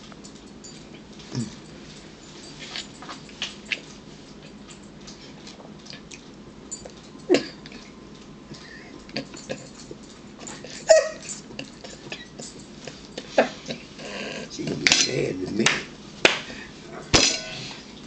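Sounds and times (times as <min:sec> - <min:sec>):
dog whimpering: 0:10.6 - 0:11.4.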